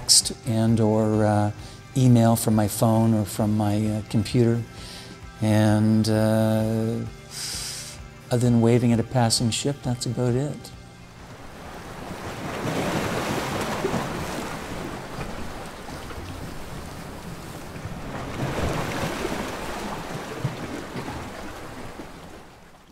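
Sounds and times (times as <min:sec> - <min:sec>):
wind: 0:00.0 - 0:22.9
ocean waves washing: 0:11.1 - 0:22.9.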